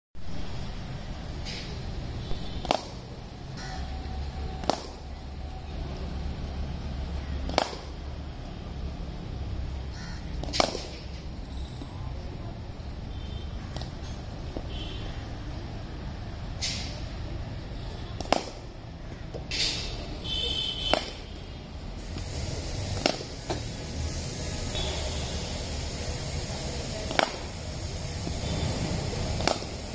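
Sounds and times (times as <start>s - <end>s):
cricket bat striking ball: 2.6s - 3.0s, 4.6s - 5.0s, 7.4s - 8.0s, 10.3s - 11.0s, 18.2s - 18.7s, 20.8s - 21.3s, 27.0s - 27.6s, 29.3s - 29.8s.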